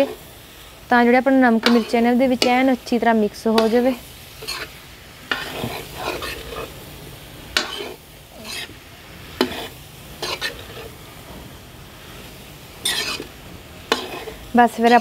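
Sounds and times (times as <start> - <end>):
frying sizzle: 0.0 - 15.0
spoon scraping a metal pan: 1.6 - 2.7, 3.5 - 6.8, 7.5 - 11.0, 12.8 - 15.0.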